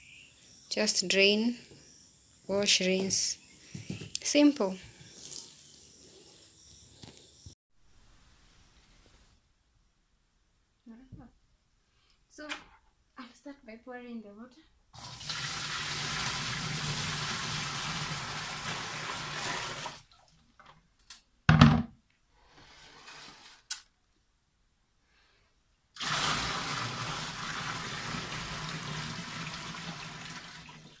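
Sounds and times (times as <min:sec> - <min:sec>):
water pouring into plastic tub: 0:15.0 - 0:20.4, 0:26.0 - 0:31.0
loud thump: 0:21.5 - 0:22.0.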